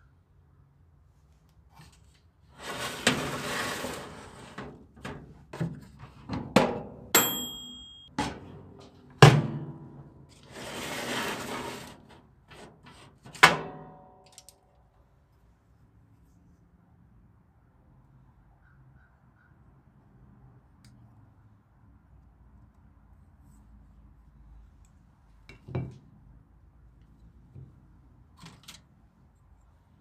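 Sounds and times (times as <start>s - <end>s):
rough scraping: 2.6s - 4.6s, 10.4s - 12.2s
high metallic ring: 7.2s - 8.1s.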